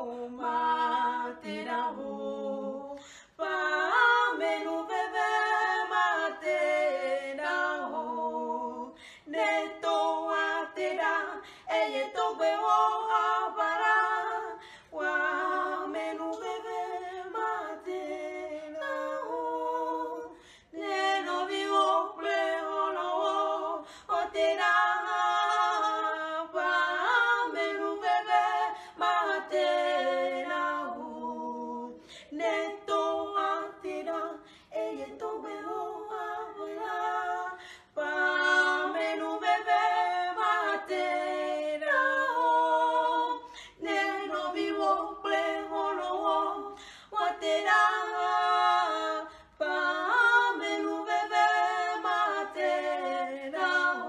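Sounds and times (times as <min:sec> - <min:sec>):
women singing a cappella: 0:00.0 - 0:54.0.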